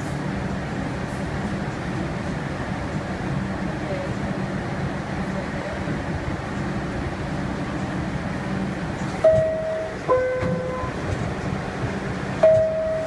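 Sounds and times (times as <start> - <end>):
subway car hum and rumble: 0.0 - 13.0
two-tone door chime: 9.2 - 11.0, 12.4 - 13.0.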